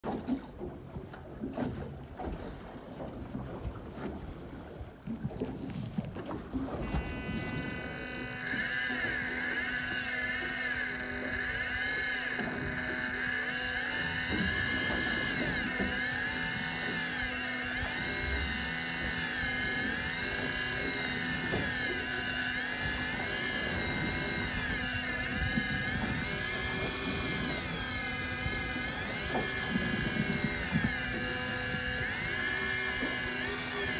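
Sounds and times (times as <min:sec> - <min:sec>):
sea noise: 0:00.0 - 0:33.9
wind: 0:00.0 - 0:33.9
fishing reel motor whine: 0:03.4 - 0:33.9.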